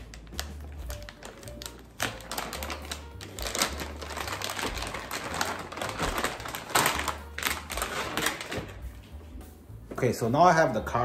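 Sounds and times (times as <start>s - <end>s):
metallic bag crinkling: 0.0s - 9.0s.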